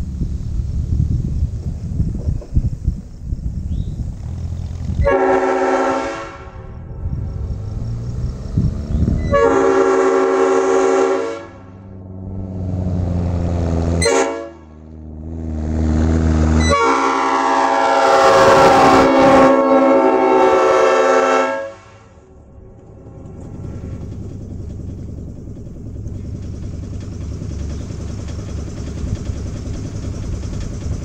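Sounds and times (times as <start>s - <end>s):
truck engine running: 0.0s - 31.0s
air horn chord blasts: 5.0s - 6.9s, 9.2s - 12.0s, 13.9s - 14.9s, 16.4s - 23.4s.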